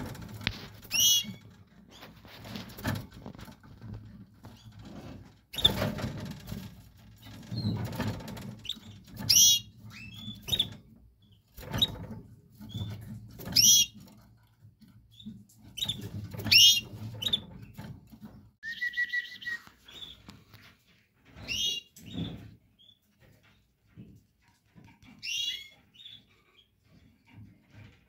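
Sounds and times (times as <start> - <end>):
canaries chirping: 0.0 - 3.0, 7.2 - 14.1, 15.0 - 17.9, 18.6 - 23.6, 24.7 - 27.1
rustles and bumps of movement: 0.0 - 18.6, 19.5 - 28.0.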